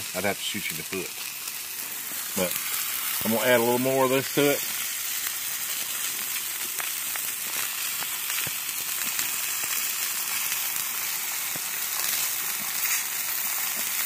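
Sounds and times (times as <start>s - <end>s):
steaks sizzling on griddle: 0.0s - 14.0s
small pops and crackles: 4.6s - 14.0s.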